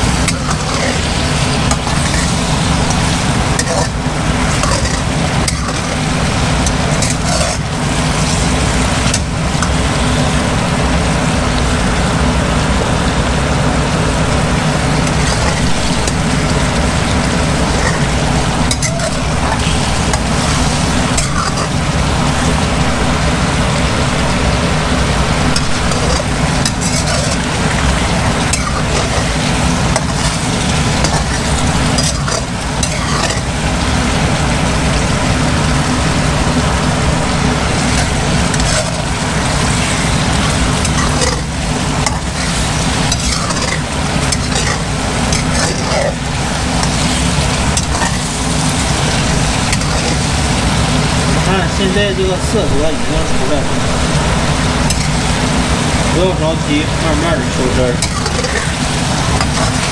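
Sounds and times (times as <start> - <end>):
metal spatula scraping pan: 0.0 - 10.0, 15.0 - 22.6, 25.5 - 33.8, 37.7 - 50.4, 54.8 - 55.4, 58.0 - 59.9
sauce bubbling and sizzling: 0.0 - 59.9
low rumble: 52.5 - 56.2.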